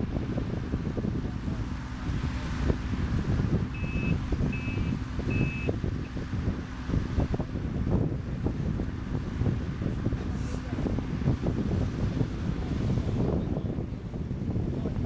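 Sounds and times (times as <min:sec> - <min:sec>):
excavator diesel engine running: 0:00.0 - 0:15.0
wind buffeting microphone: 0:00.0 - 0:15.0
reversing alarm beeping: 0:03.8 - 0:05.8.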